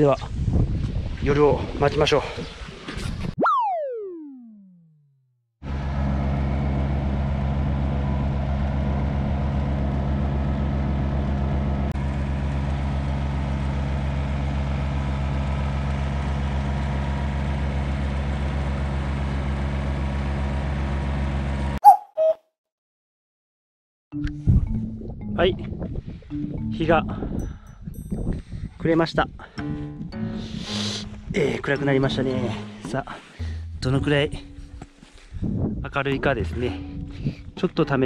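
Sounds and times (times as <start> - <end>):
short sharp sound: 21.8 - 22.4.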